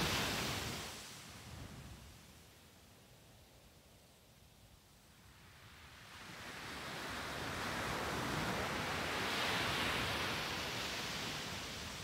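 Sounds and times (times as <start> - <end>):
sea wave washing up a beach: 0.0 - 1.2.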